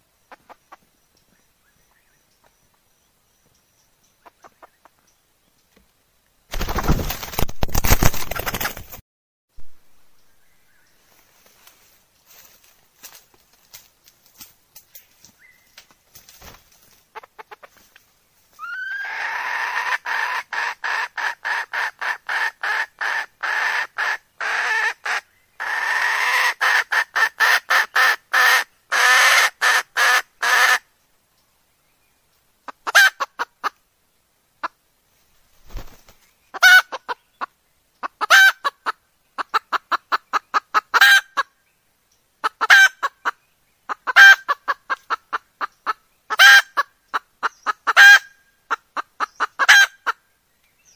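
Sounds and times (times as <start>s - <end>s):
hen cackling: 18.6s - 30.8s, 32.7s - 33.8s, 36.5s - 41.5s, 42.4s - 50.2s.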